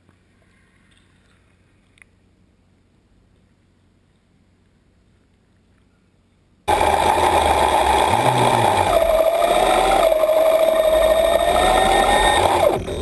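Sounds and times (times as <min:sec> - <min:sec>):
underwater thrusters whining: 0:06.7 - 0:13.0.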